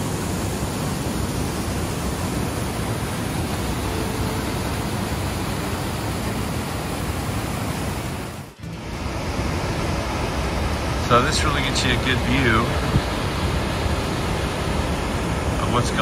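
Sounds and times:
rushing whitewater: 0.0s - 16.0s.

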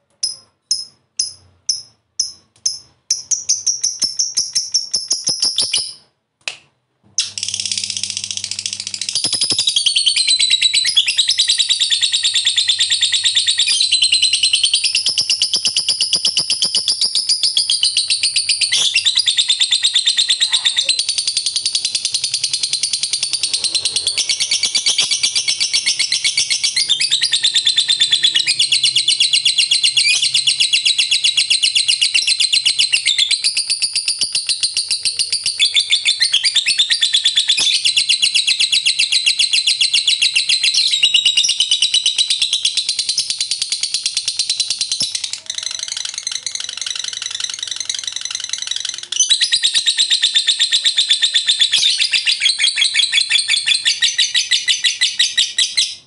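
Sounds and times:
lovebird chattering trill: 7.2s - 56.0s.

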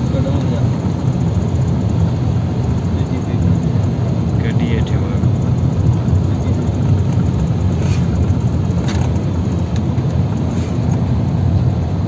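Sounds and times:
car interior road rumble: 0.0s - 12.0s.

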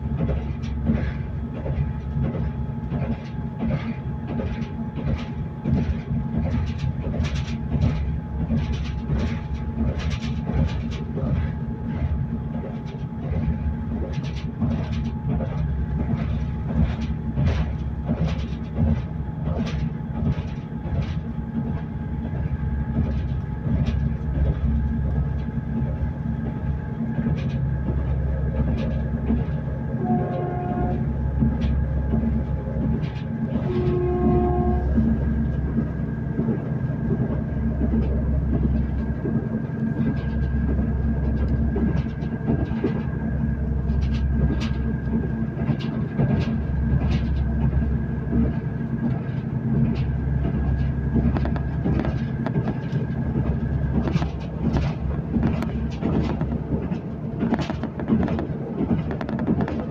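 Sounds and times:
train rumbling inside carriage: 0.0s - 59.9s
wheels clicking over rail joints: 0.0s - 59.9s
train horn: 29.9s - 31.2s, 33.5s - 35.8s.

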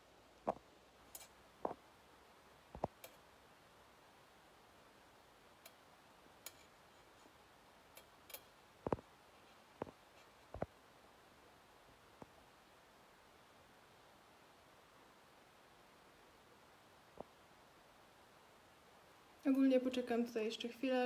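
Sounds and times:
faint clicks and taps: 0.4s - 1.8s, 2.7s - 3.3s, 6.4s - 10.8s.

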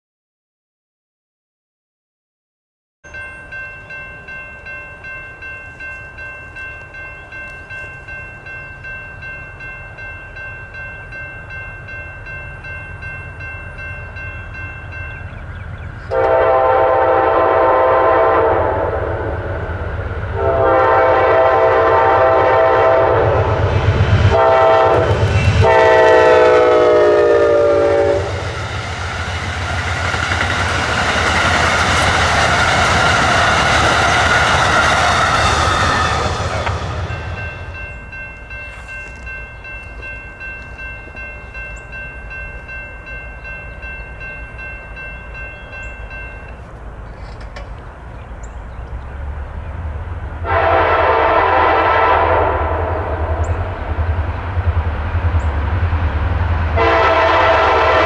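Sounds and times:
railroad crossing bell ringing: 3.0s - 49.6s, 56.8s - 58.0s
train cars rushing past: 3.1s - 58.0s
train horn blasts: 16.1s - 28.6s, 50.4s - 53.8s, 56.7s - 58.0s.

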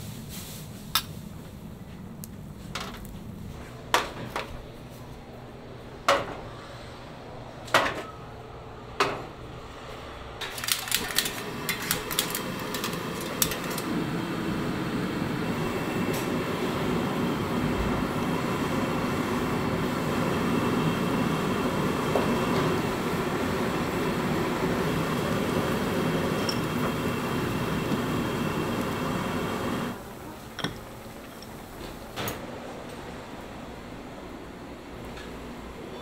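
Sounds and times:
quick clicks and rattles: 10.4s - 13.8s
cookware clanking: 26.3s - 27.1s.

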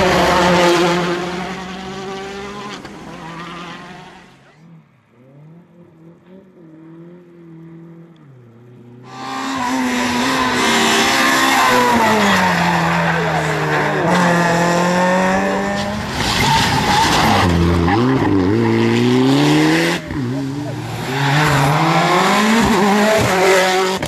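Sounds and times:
distant car engine revving: 0.0s - 24.0s
rally car at high revs: 0.0s - 24.0s
rally car passing close: 5.2s - 24.0s.

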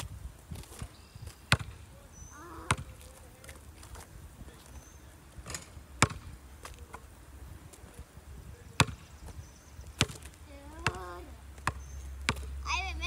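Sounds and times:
basketball bouncing on asphalt: 0.5s - 1.9s, 2.6s - 3.2s, 6.0s - 7.1s, 8.7s - 12.6s.

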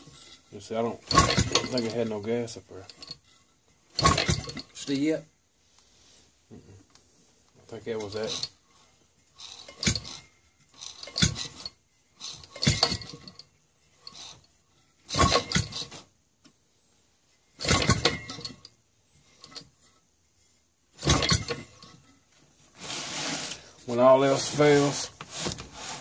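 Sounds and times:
engine turned over by hand clattering: 1.0s - 2.1s, 3.9s - 4.8s, 9.4s - 16.0s, 17.6s - 18.7s, 21.0s - 22.1s.

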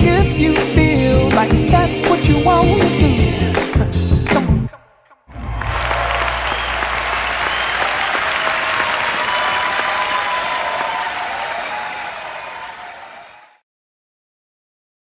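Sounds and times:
crowd applauding and cheering: 5.3s - 13.6s.

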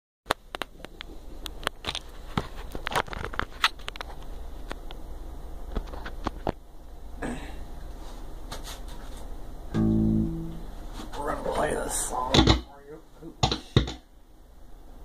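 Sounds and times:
steady low hum: 3.8s - 15.0s.

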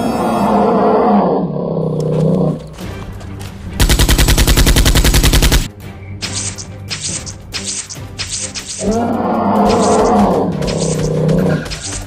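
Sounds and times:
creature roar: 0.0s - 2.6s, 8.8s - 11.6s
automatic gunfire sound effect: 3.8s - 5.7s.

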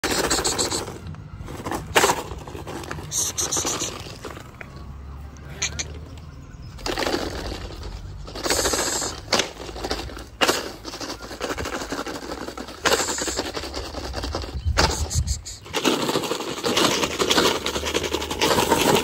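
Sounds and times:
dry straw rustling and crunching: 6.8s - 19.0s.

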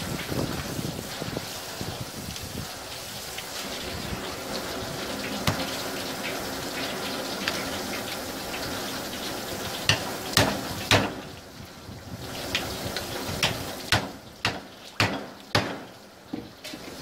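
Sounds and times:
tap water running onto board: 0.0s - 17.0s
sharp knocks: 9.9s - 11.2s, 13.4s - 16.5s.

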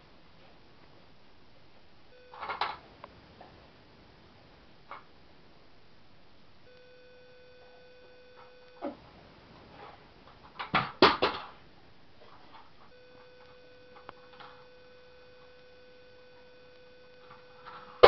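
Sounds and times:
faint electronic whine: 0.0s - 18.0s
toys knocking and clattering: 10.4s - 11.6s.

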